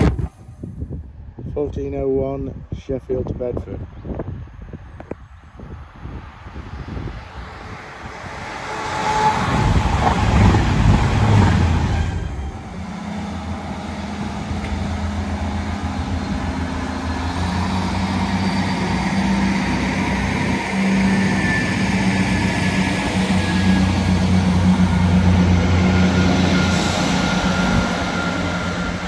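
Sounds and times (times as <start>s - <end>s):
train passing with rush of wheels: 4.2s - 29.0s
diesel train engine drone: 4.9s - 29.0s
train wheel rumble: 7.4s - 29.0s.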